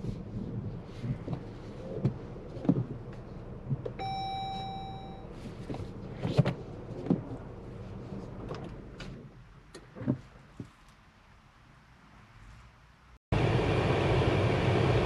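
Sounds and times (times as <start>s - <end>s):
low car rumble: 0.0s - 10.8s
electronic car beep: 4.0s - 5.3s.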